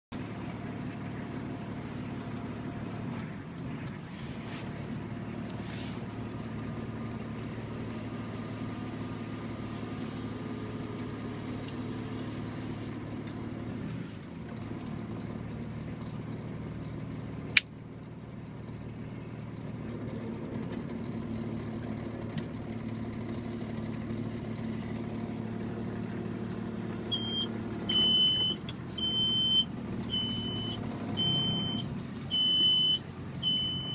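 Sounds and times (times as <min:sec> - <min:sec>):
vehicle engine running: 0:00.0 - 0:33.9
high electronic beeps: 0:27.1 - 0:33.9.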